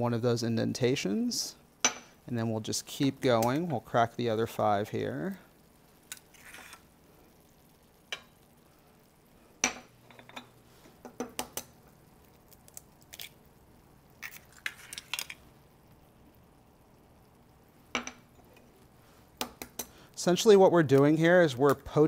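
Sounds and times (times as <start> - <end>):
eggs cracked on ramekins: 11.0 - 13.5, 14.1 - 15.5, 19.4 - 20.0.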